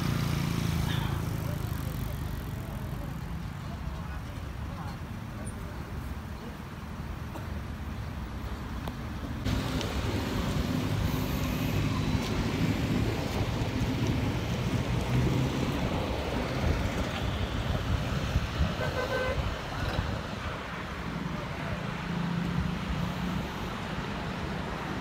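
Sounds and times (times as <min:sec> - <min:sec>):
road traffic rumble: 0:00.0 - 0:25.0
short horn toot: 0:18.8 - 0:19.5.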